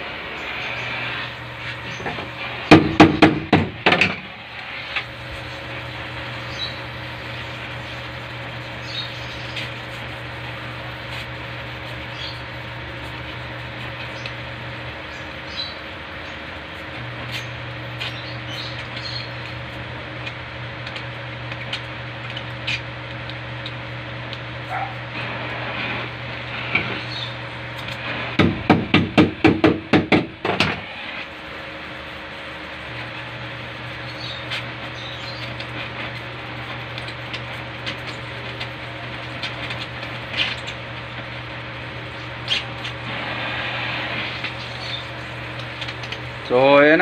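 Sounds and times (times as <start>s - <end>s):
welding torch hissing: 0.0s - 47.0s.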